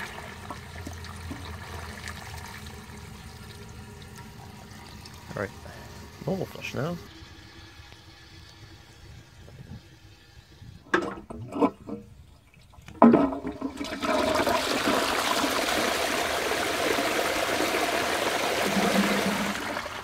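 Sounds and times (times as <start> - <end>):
water rushing into toilet bowl: 0.0 - 12.0, 12.6 - 20.0
toilet flush knocks: 18.6 - 19.8.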